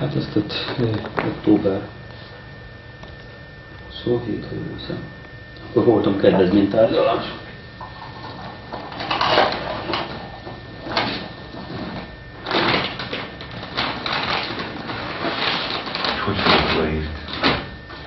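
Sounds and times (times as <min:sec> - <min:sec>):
objects rustling and knocking: 0:07.8 - 0:18.0.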